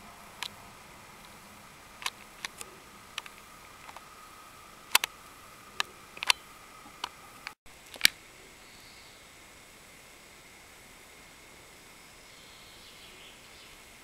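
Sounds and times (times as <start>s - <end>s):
faint steady hiss: 0.0s - 14.0s
sharp clicks: 2.0s - 4.1s, 4.9s - 8.2s.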